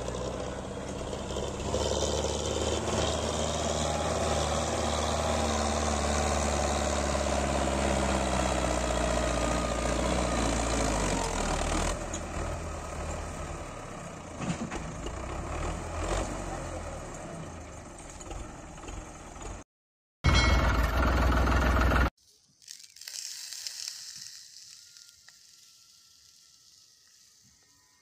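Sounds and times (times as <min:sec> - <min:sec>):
tractor engine running: 0:00.0 - 0:19.6, 0:20.3 - 0:22.1.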